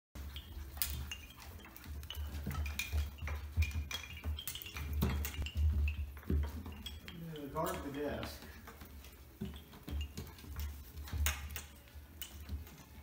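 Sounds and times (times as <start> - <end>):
metal objects clinking: 0.2 - 13.0.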